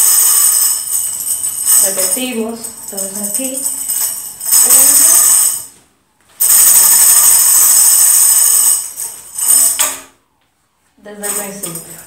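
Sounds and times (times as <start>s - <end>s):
tambourine jingles rattling: 0.0s - 5.7s, 6.4s - 10.0s.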